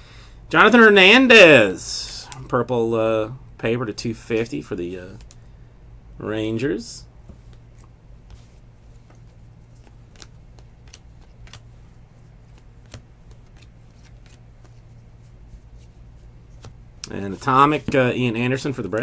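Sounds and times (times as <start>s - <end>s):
steady low hum: 0.0s - 19.0s
cards flicking and rustling: 7.2s - 19.0s.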